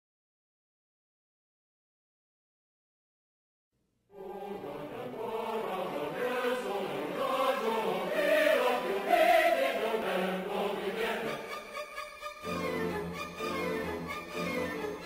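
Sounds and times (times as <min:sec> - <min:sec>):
voices chanting together: 0:04.1 - 0:11.9.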